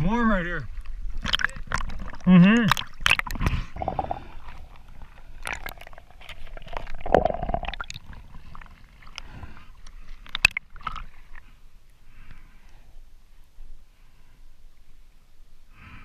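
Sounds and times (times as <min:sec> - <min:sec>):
muffled water sloshing and gurgling: 0:00.0 - 0:11.6
water splashes: 0:00.6 - 0:11.5.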